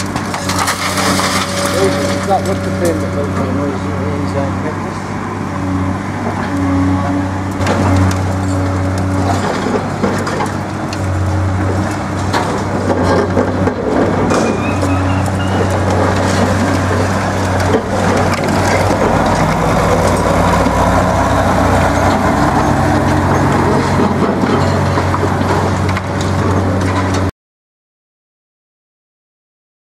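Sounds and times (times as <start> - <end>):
concrete cracking and crunching: 0.0 - 3.5, 7.6 - 27.3
heavy diesel engine running: 0.0 - 27.3.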